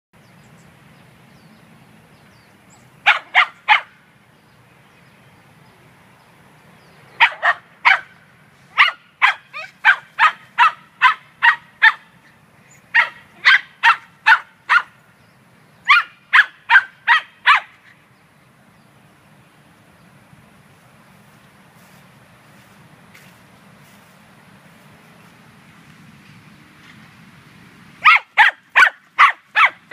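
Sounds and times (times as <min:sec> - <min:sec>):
small dog barking: 0:03.0 - 0:04.0, 0:07.2 - 0:08.1, 0:08.8 - 0:12.1, 0:12.9 - 0:15.0, 0:15.9 - 0:17.8, 0:28.0 - 0:29.9.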